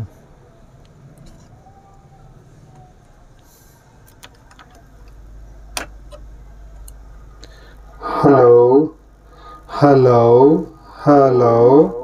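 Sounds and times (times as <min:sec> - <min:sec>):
amplifier mains hum: 0:00.0 - 0:12.0
small clicks and knocks: 0:02.7 - 0:05.2.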